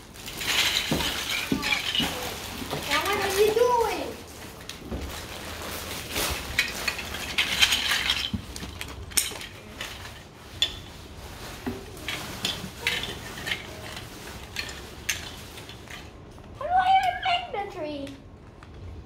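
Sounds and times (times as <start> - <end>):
plastic bricks clattering and clicking: 0.1 - 4.8, 6.0 - 10.8, 11.9 - 16.2.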